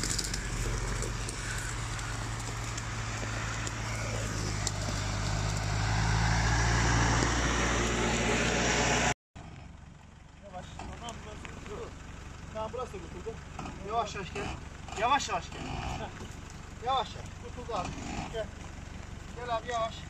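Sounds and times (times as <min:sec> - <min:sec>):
noisy rush: 0:00.0 - 0:09.1
pickup truck engine droning: 0:00.0 - 0:20.0.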